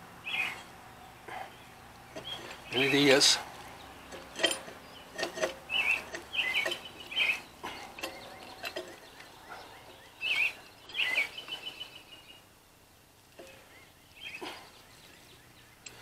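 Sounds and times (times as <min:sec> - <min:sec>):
small birds chirping: 0:00.2 - 0:16.0
metal stem clicks and knocks: 0:04.1 - 0:10.0.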